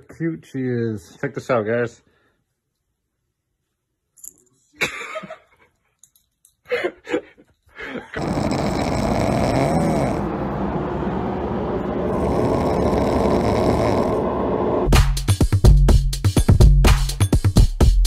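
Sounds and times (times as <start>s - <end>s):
puppy snoring: 8.2s - 10.9s, 11.7s - 14.9s.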